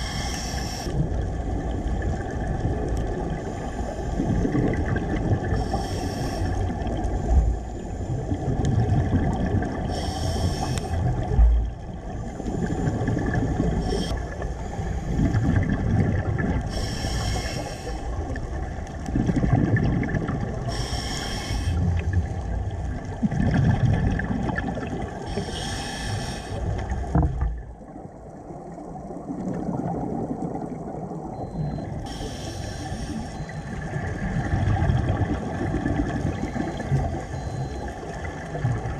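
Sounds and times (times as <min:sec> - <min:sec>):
scuba regulator breathing: 0:00.0 - 0:01.0, 0:05.5 - 0:08.4, 0:09.8 - 0:11.3, 0:12.1 - 0:15.6, 0:16.6 - 0:18.2, 0:20.7 - 0:22.0, 0:25.3 - 0:26.9, 0:32.0 - 0:33.7
exhaled bubbles underwater: 0:00.0 - 0:38.9.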